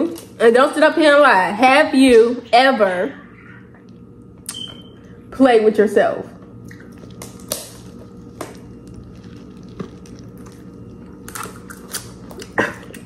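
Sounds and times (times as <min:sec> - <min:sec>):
quiet chewing: 0:06.4 - 0:13.0.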